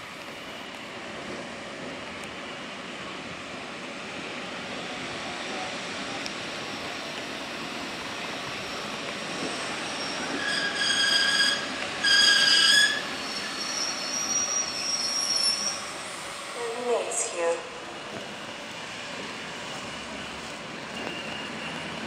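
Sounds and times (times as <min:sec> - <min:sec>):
train brake squeal: 0:08.5 - 0:16.1, 0:19.6 - 0:22.0
high-pitched train horn: 0:10.4 - 0:13.0.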